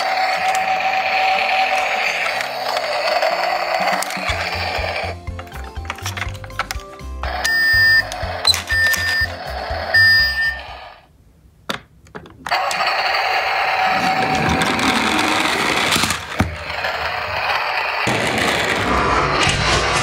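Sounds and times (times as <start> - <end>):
toy truck rolling on hard floor: 0.0 - 6.8, 12.5 - 20.0.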